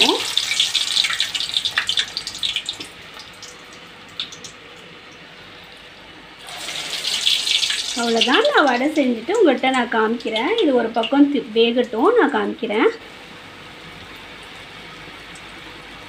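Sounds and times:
hot oil sizzling and crackling: 0:00.0 - 0:11.4.

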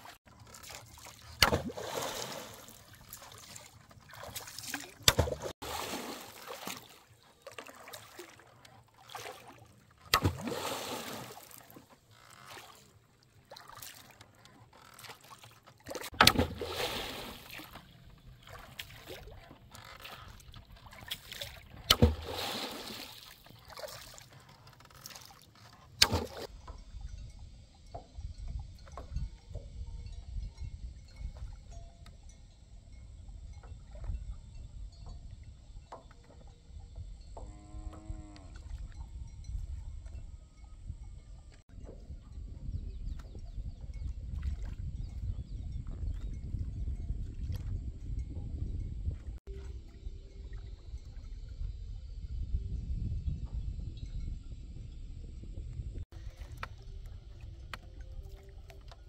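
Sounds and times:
oar knocking and splashing: 0:00.0 - 0:26.8, 0:41.7 - 0:47.7, 0:56.1 - 0:59.0.

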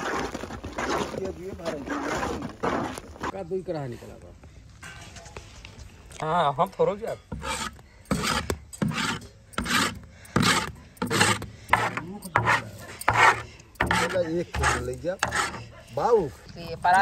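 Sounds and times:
scraper rasping on iron pan: 0:07.3 - 0:16.2.

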